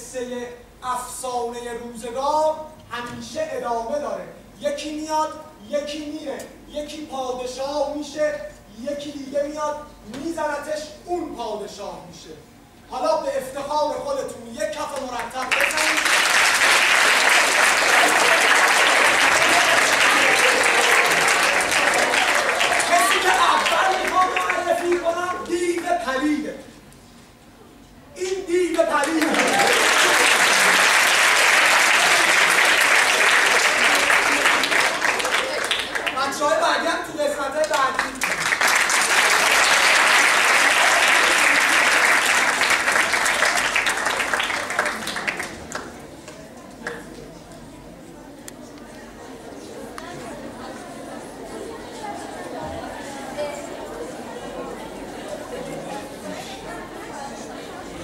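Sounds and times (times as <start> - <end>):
audience applauding: 15.4 - 25.9, 28.7 - 36.6, 37.6 - 46.0.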